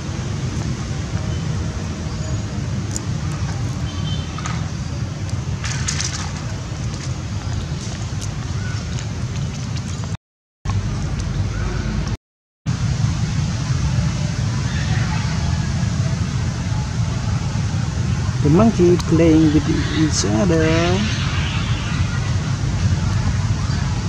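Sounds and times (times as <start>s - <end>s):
wind on microphone: 12.8s - 24.0s.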